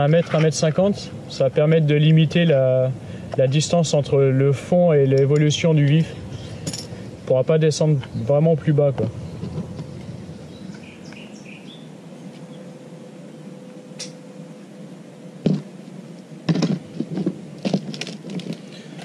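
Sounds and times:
low background hiss: 0.0 - 16.5
faint bird chirps: 9.2 - 12.7.

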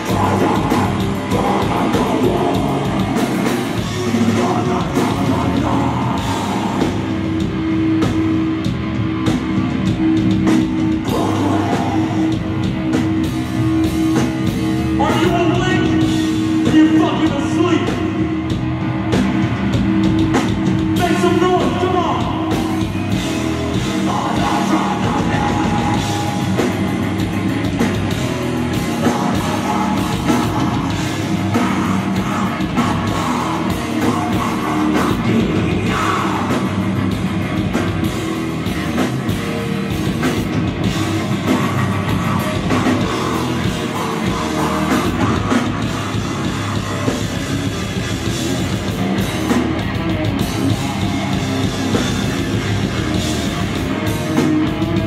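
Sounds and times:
vocalist singing: 0.0 - 7.5, 11.0 - 12.9, 14.9 - 18.4, 20.9 - 27.8, 28.5 - 37.6, 41.4 - 47.1
heavy metal band playing: 0.0 - 55.0.

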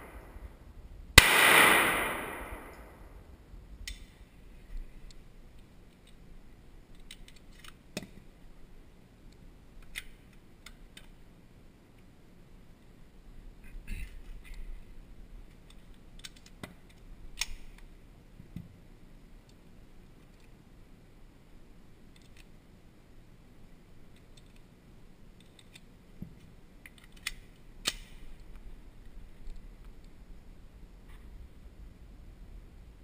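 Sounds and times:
faint low hum: 0.0 - 33.0
pistol handling clicks: 15.7 - 17.8, 26.9 - 28.5.

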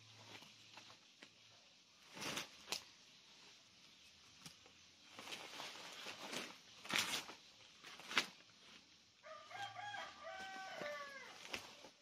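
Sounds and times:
dry leaves and twigs crunching: 2.0 - 12.0
rooster crowing: 9.2 - 11.8.

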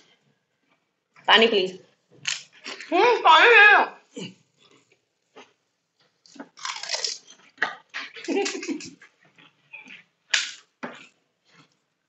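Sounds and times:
crunching and chewing: 4.6 - 11.9.

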